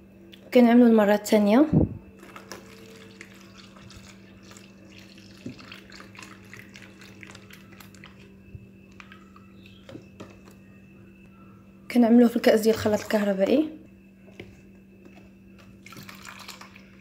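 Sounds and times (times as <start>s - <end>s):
low hum: 0.0s - 17.0s
milk trickling: 2.2s - 10.5s, 15.7s - 17.0s.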